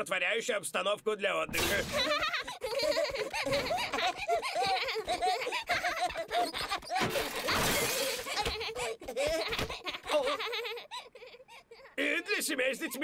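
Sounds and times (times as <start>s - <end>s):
cartoon children giggling: 1.6s - 12.0s.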